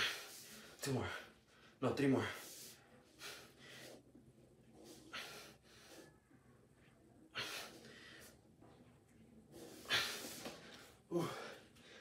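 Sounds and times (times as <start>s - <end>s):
man breathing hard: 0.0s - 4.1s, 4.9s - 6.2s, 9.6s - 12.0s.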